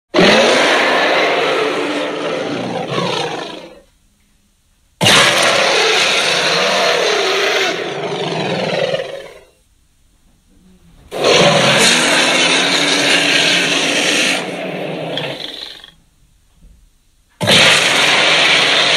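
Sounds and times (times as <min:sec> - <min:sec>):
monster roar: 0:00.1 - 0:03.8, 0:05.0 - 0:09.4, 0:11.1 - 0:15.9, 0:17.4 - 0:18.9.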